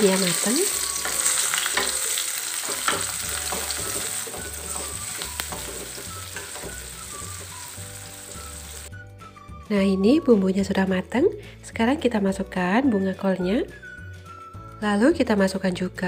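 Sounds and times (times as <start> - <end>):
food sizzling in hot oil: 0.0 - 8.9
metal spatula scraping wok: 0.2 - 8.8.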